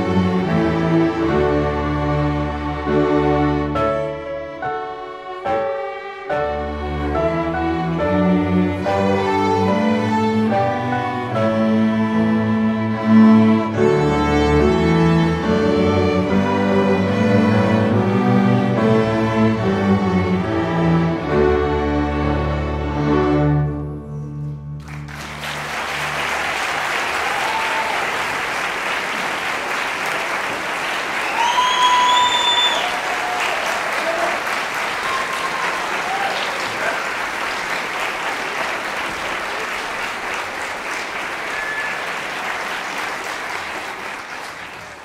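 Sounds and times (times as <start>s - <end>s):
audience applauding: 24.8s - 45.0s.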